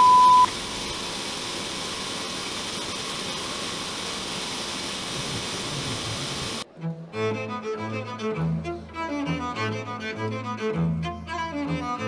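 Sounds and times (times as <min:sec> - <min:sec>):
loud beep: 0:00.0 - 0:00.5
tv static hiss: 0:00.0 - 0:06.6.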